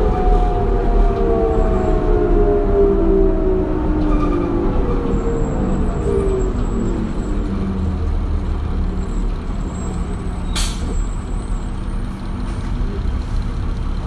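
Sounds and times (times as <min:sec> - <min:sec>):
bus diesel engine droning: 0:00.0 - 0:14.0
air brake hiss: 0:10.5 - 0:11.1.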